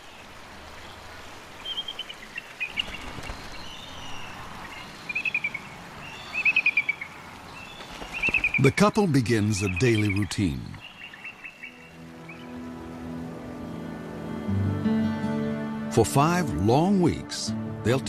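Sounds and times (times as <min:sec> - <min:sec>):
faint outdoor hiss: 0:00.0 - 0:18.0
eagles chattering calls: 0:08.2 - 0:12.6.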